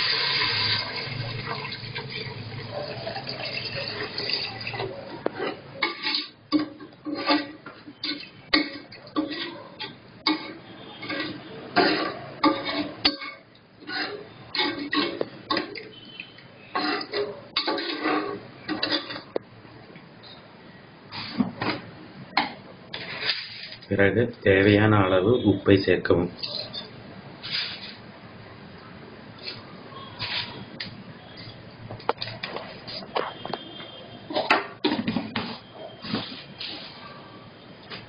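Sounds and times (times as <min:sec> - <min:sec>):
water splashing into a pot: 0:00.0 - 0:05.2.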